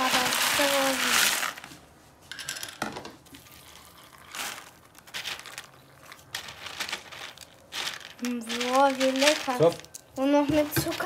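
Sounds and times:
plastic bottle rustling: 0:00.0 - 0:01.9, 0:03.2 - 0:11.0
milk pouring onto cereal: 0:03.3 - 0:11.0.

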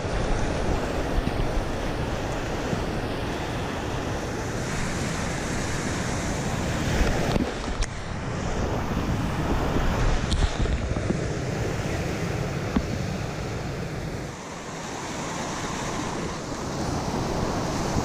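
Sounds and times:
rapids rushing and crashing: 0:00.0 - 0:18.0
wind buffeting microphone: 0:00.0 - 0:18.0.

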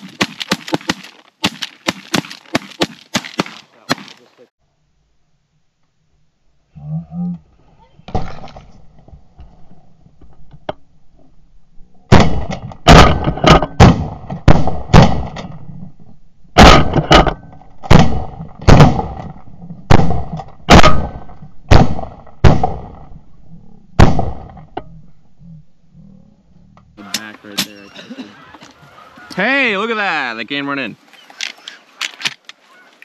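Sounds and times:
shotguns firing a rapid volley: 0:00.0 - 0:04.3, 0:12.1 - 0:15.4, 0:16.6 - 0:19.3, 0:19.9 - 0:23.0, 0:24.0 - 0:24.5.

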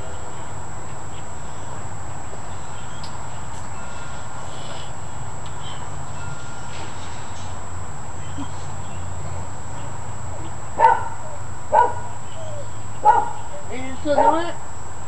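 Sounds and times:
dog barking: 0:10.8 - 0:13.5, 0:14.1 - 0:14.6.

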